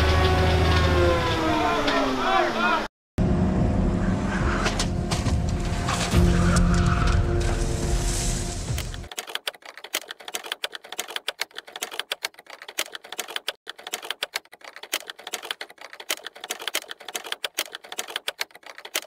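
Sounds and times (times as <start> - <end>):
keyboard typing clicks: 8.8 - 19.0.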